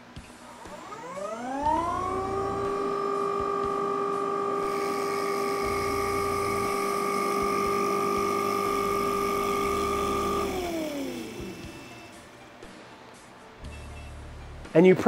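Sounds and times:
drill press motor whine: 0.0s - 12.5s
spindle spinning down: 0.5s - 12.2s.

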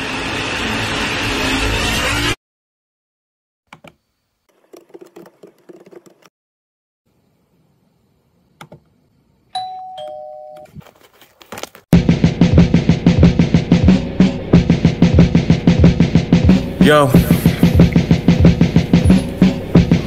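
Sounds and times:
two-note doorbell chime: 9.6s - 10.7s.

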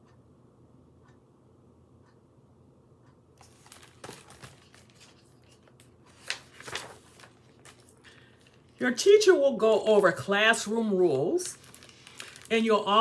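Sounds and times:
book page rustling: 3.4s - 8.8s, 11.4s - 13.0s.

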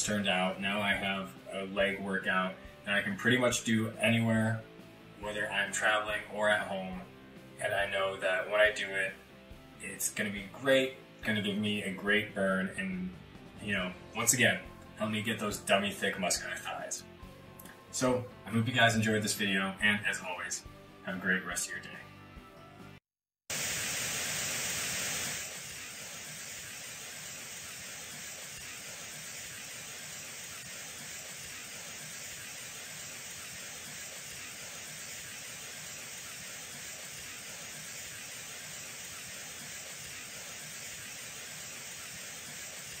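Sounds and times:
television static hiss: 7.6s - 9.2s, 23.5s - 43.0s.

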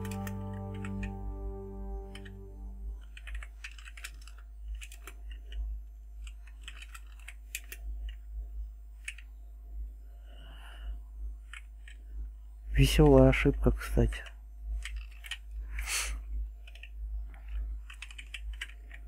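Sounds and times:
typing on computer keyboard: 0.0s - 1.2s, 3.0s - 8.2s, 14.8s - 15.5s, 16.6s - 19.0s.

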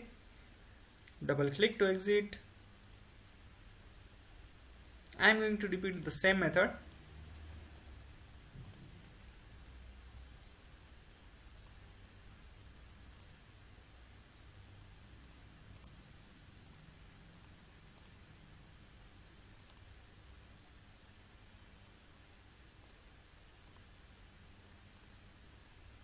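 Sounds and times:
faint low hum: 0.0s - 26.0s
computer mouse buttons clicking: 2.8s - 3.1s, 6.8s - 7.0s, 7.6s - 7.9s, 8.6s - 9.0s, 11.6s - 11.8s, 13.1s - 13.4s, 15.2s - 16.0s, 16.6s - 18.2s, 19.5s - 19.9s, 20.9s - 21.2s, 22.8s - 23.0s, 23.6s - 23.9s, 24.6s - 25.8s.

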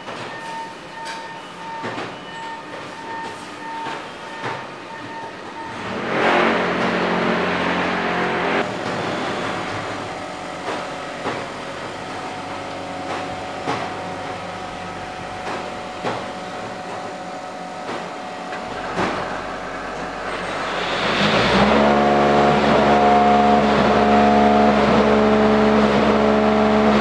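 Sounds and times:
hydraulic machinery humming: 0.0s - 27.0s
rushing noise: 20.1s - 27.0s.

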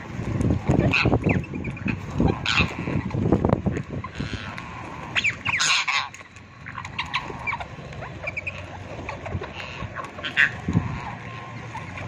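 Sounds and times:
parakeets chirping: 4.0s - 12.0s.

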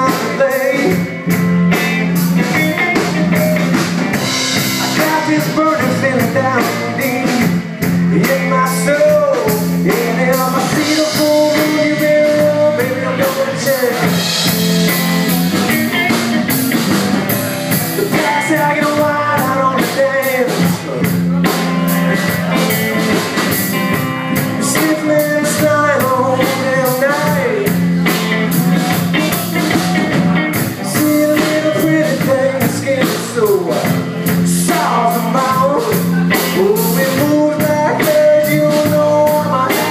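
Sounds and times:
drums: 0.0s - 39.9s
rock guitar: 0.0s - 39.9s.

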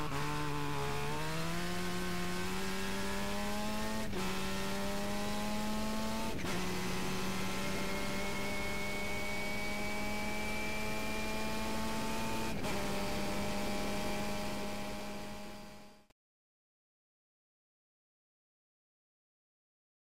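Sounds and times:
race car engine pulling hard: 0.0s - 16.0s.

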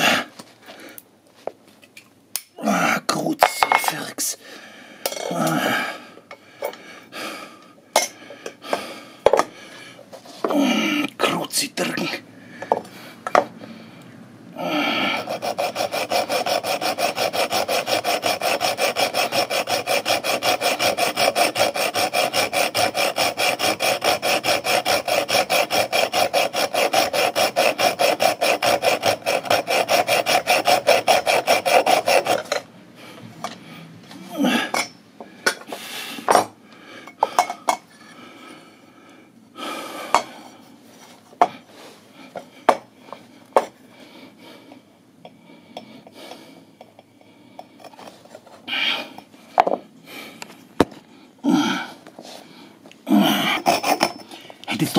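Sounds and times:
hacksaw cutting metal tube: 15.0s - 32.7s, 34.7s - 35.0s, 53.5s - 54.9s.

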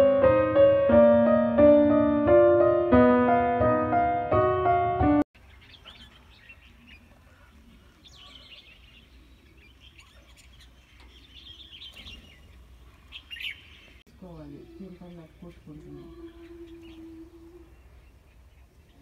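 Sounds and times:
small birds chirping: 5.4s - 19.0s.

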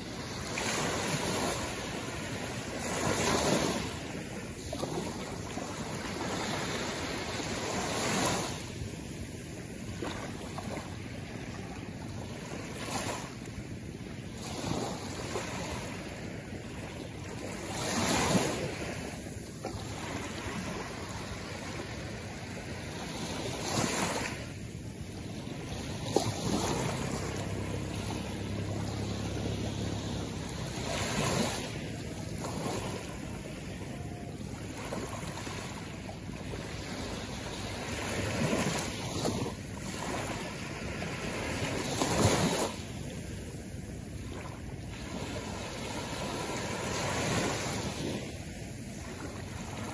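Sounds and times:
waves washing on pebble shore: 17.5s - 44.2s.

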